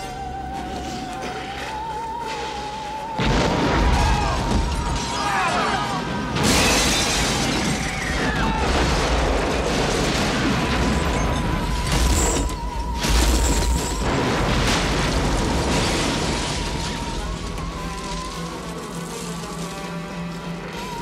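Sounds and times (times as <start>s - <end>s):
film music: 0.0s - 21.0s
explosion blasts: 3.2s - 5.2s, 6.0s - 17.5s.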